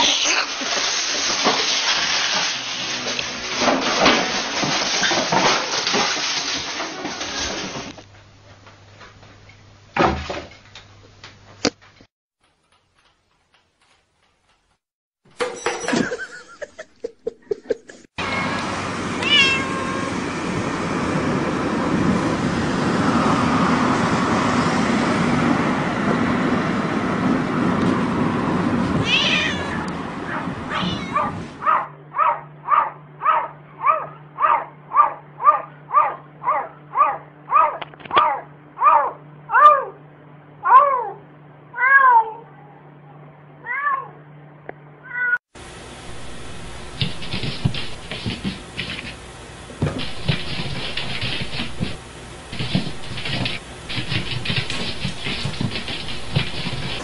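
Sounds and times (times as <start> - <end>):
cat meowing: 18.2 - 20.2, 29.0 - 31.4, 41.8 - 42.5
road noise: 18.2 - 31.7.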